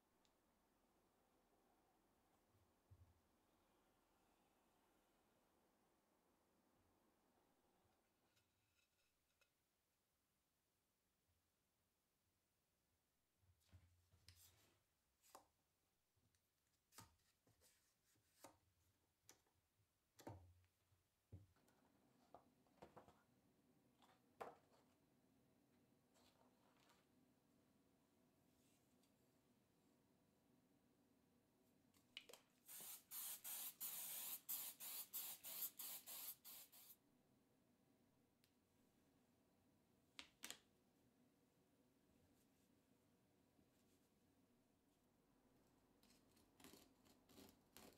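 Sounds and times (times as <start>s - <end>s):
aerosol spray hissing: 32.7s - 37.0s.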